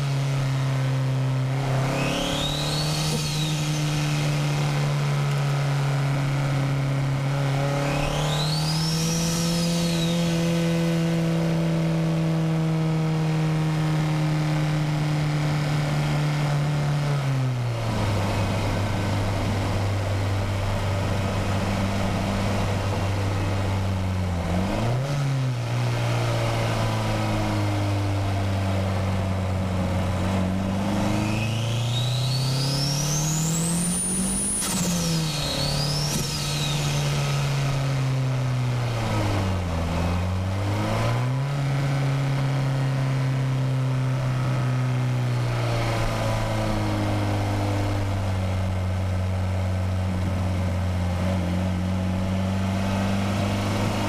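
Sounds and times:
turbocharged car engine revving: 0.0 - 54.0
turbo whistle: 1.9 - 4.2, 7.8 - 10.5, 31.2 - 37.3.

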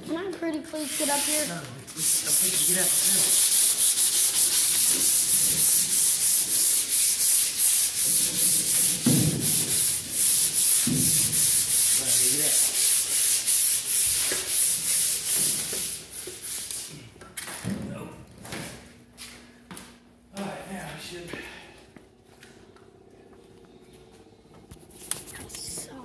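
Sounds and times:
hand sanding metal: 0.7 - 16.9.

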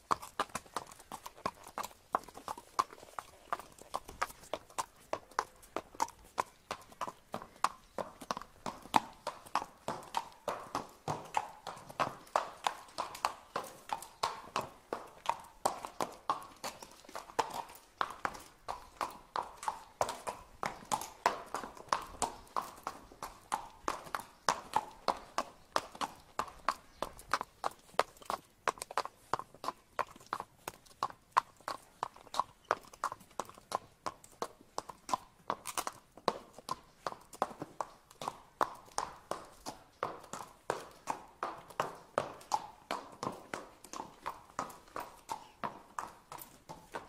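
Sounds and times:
horse hooves clip-clopping: 0.0 - 47.0.

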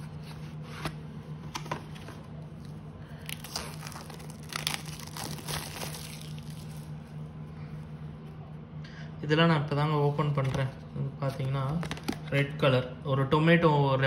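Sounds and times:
low hum: 0.0 - 11.5
card packaging crinkling: 3.2 - 7.0.

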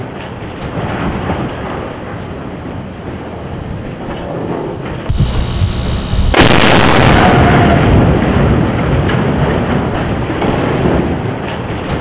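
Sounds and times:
loud blast with sustained roar: 4.4 - 12.0
explosive charges detonating: 5.1 - 8.7
low rumble: 5.1 - 8.8
sharp crack: 5.1 - 9.2.

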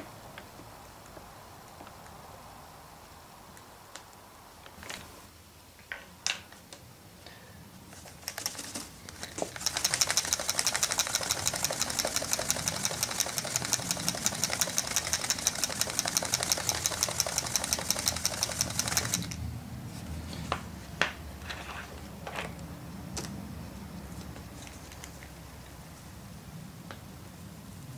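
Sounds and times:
plastic bottle rattling when shaken: 8.0 - 19.4
sharp clicks: 8.2 - 19.4.

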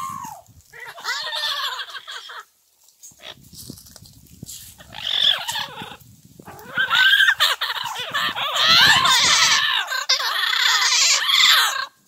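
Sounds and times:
parrots squawking: 0.8 - 2.4, 4.8 - 12.0.

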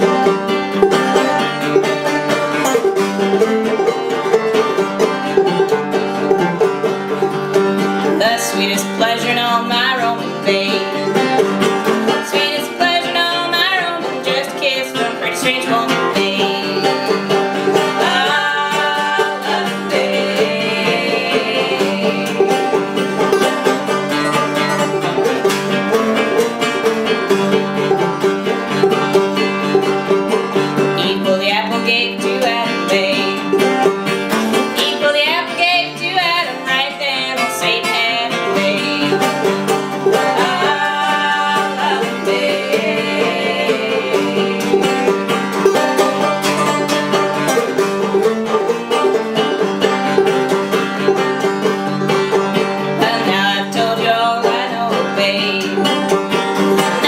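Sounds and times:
acoustic guitar: 0.0 - 57.0
banjo: 0.0 - 57.0
person singing: 8.0 - 25.3, 30.5 - 33.9, 34.5 - 47.4, 52.8 - 57.0.

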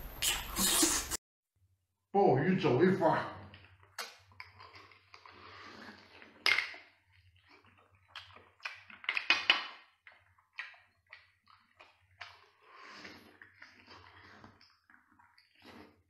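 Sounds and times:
person chewing: 0.1 - 1.2, 3.6 - 6.4, 7.0 - 9.0, 9.8 - 16.0
person slurping: 0.1 - 1.2, 4.4 - 6.4, 12.2 - 16.0.

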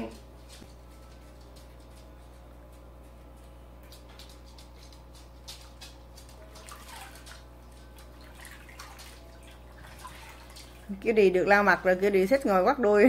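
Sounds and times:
water splashing and dripping: 5.2 - 11.3.

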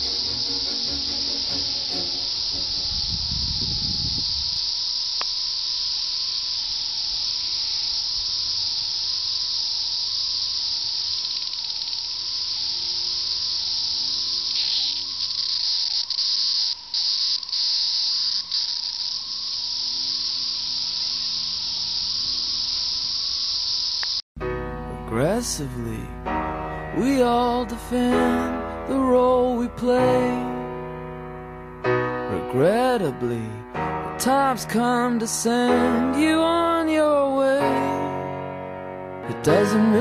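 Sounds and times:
cicadas droning: 0.0 - 24.2.

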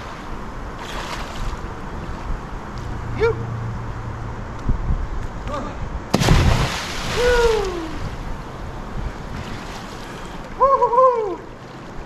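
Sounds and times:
splash into river: 6.1 - 8.2
person shouting whoops: 7.1 - 8.0, 10.6 - 11.5.

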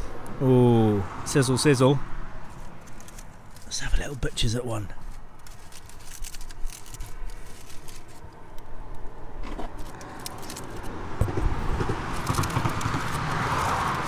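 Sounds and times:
aluminium foil crinkling: 2.5 - 10.9.

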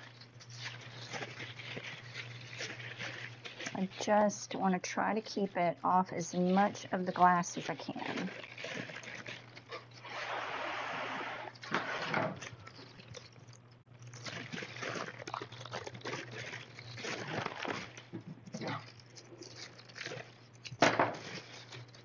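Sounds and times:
plastic bag rustling: 0.0 - 4.2, 6.2 - 10.0, 14.0 - 20.4.

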